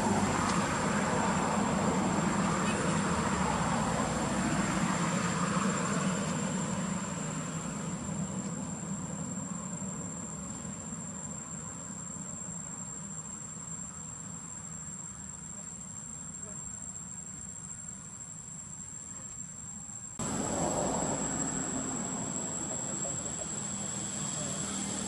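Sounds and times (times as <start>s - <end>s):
insects droning: 0.0s - 25.0s.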